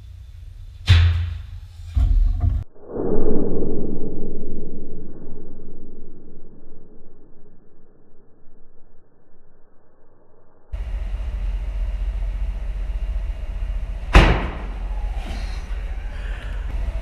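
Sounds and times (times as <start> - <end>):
steady low hum: 0.0 - 17.0
vortex cannon thump: 14.1 - 14.8.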